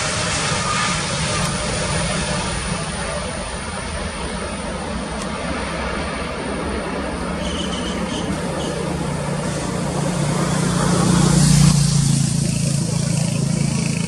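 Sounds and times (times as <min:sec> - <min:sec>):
jet engine roar: 0:00.0 - 0:14.0.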